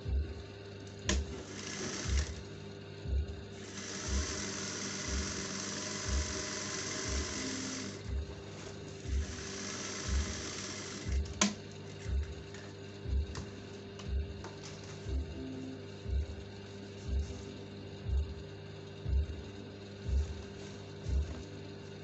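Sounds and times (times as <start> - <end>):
thumping music beat: 0.0 - 21.6
sewing machine running: 1.1 - 2.5, 3.5 - 12.3.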